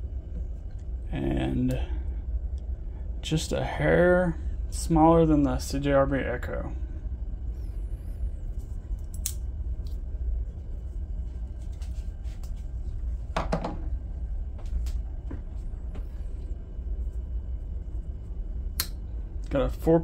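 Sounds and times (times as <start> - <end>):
low room rumble: 0.0 - 20.0
knives clicking and tapping: 9.0 - 9.4.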